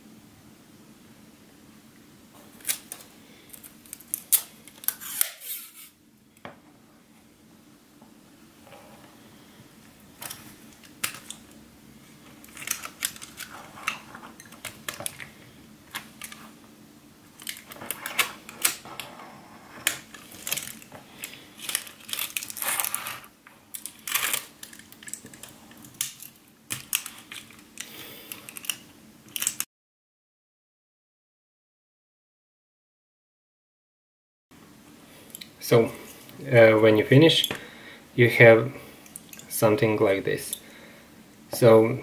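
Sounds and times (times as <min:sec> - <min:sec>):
tape crackling off roll: 0:17.3 - 0:28.8.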